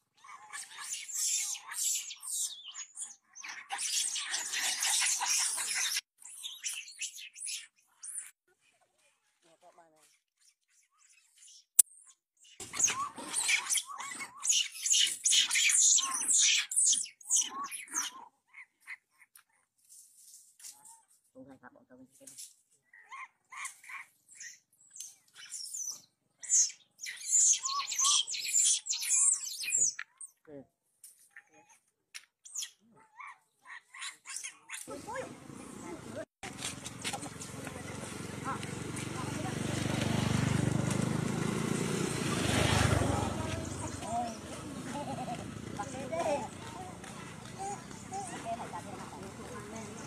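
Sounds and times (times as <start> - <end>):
animal chirps and squeals: 0.2 - 8.4, 10.4 - 19.3, 22.9 - 30.4, 32.4 - 36.8, 43.0 - 50.0.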